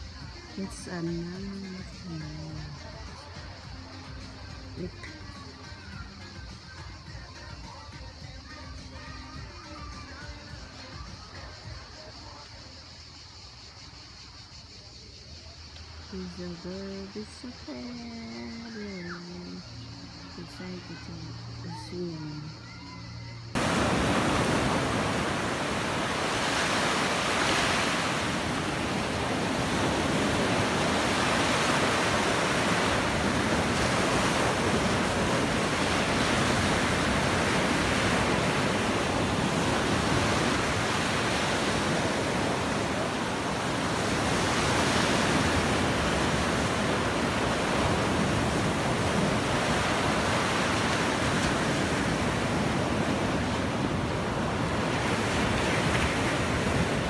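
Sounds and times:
small waves breaking on sand: 23.5s - 57.0s.

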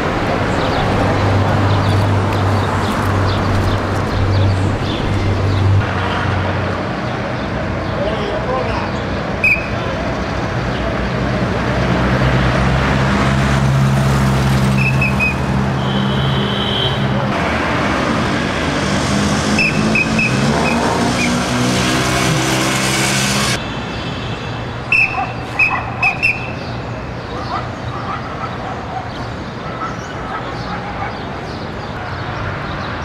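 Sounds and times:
vehicle engine humming: 0.0s - 6.0s, 10.5s - 23.6s
whistle short sharp blasts: 9.4s - 9.7s, 14.8s - 16.9s, 19.6s - 21.4s, 24.9s - 26.6s.

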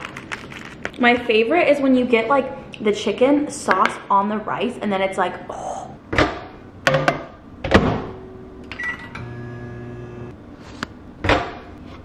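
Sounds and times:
microwave humming: 8.4s - 10.4s.

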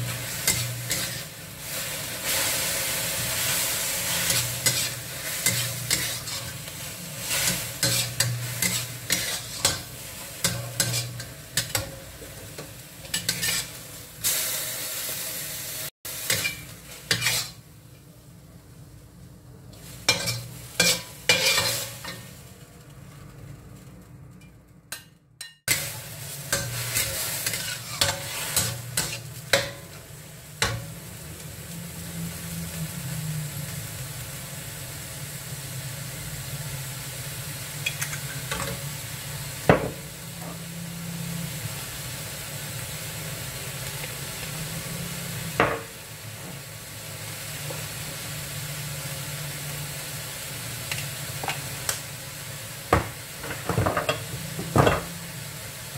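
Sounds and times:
metal spatula scraping a wok: 0.0s - 12.2s, 13.0s - 14.4s, 16.2s - 17.6s, 19.8s - 22.3s, 25.4s - 29.9s
meat sizzling in a wok: 0.0s - 24.3s, 25.6s - 55.9s.

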